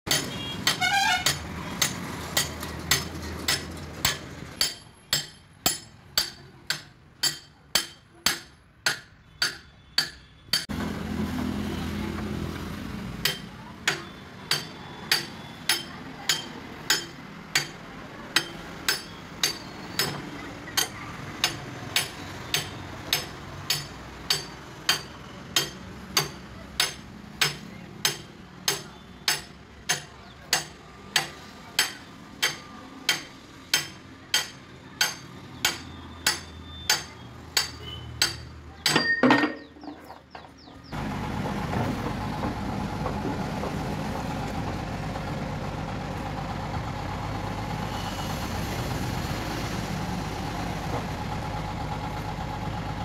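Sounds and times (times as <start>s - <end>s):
hammer striking steel: 0.1s - 10.8s, 13.2s - 39.8s.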